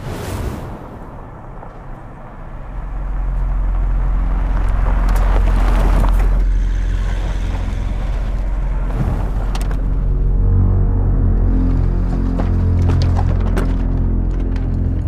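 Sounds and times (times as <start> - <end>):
vehicle engines rumbling: 0.8 - 15.0.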